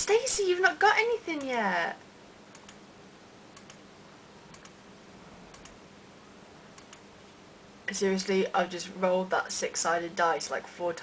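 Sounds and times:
low steady hum: 0:00.0 - 0:11.0
computer mouse clicks: 0:02.5 - 0:02.8, 0:03.5 - 0:03.8, 0:04.5 - 0:04.8, 0:05.5 - 0:05.8, 0:06.8 - 0:07.1.

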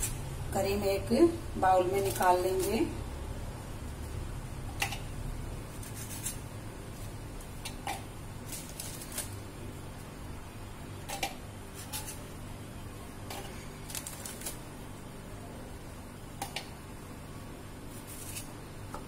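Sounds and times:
low steady hum: 0:00.0 - 0:19.0
metal spoon scraping: 0:11.1 - 0:12.3.

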